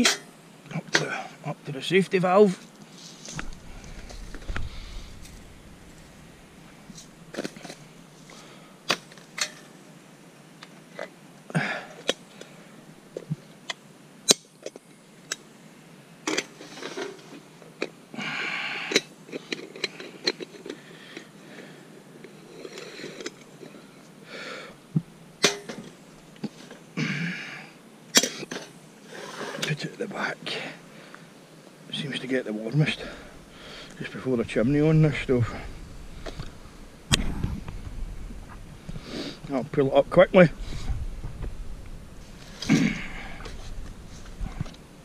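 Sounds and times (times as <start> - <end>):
camp gear clicks and knocks: 3.3 - 6.3, 6.9 - 9.8, 18.9 - 21.4, 25.4 - 26.8, 35.5 - 38.6, 40.6 - 44.9.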